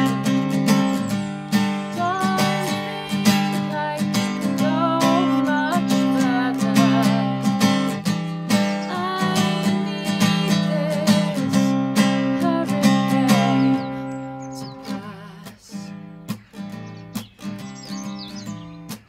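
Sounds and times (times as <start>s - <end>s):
woman singing: 0.0s - 16.1s
acoustic guitar strumming: 0.0s - 19.0s.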